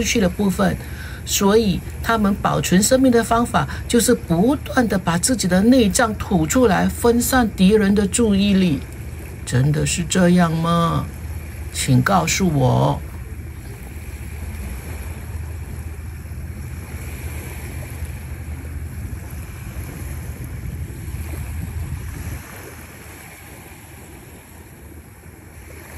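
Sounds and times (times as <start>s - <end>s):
surf washing on shore: 0.0s - 25.9s
wind rumbling on microphone: 0.0s - 25.9s.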